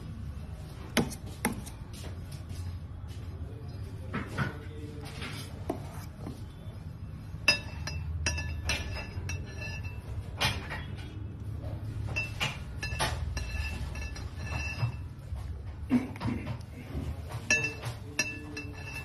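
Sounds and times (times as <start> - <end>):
metal spatula clinking against metal: 7.4 - 10.9, 12.1 - 15.2, 17.4 - 19.0.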